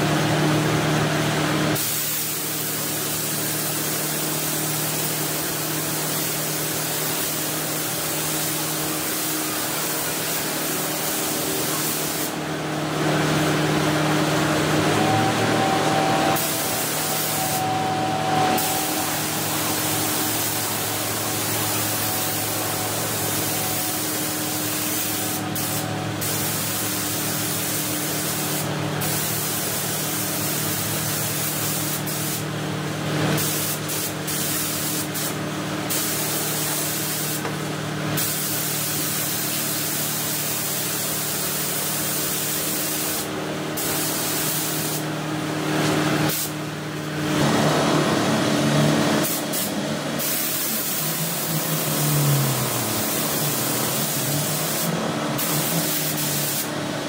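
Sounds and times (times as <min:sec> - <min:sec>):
spray gun hissing: 0:01.8 - 0:32.5, 0:33.4 - 0:37.4, 0:38.2 - 0:45.4, 0:46.3 - 0:46.9, 0:49.2 - 0:56.8
low hum: 0:12.5 - 0:26.3.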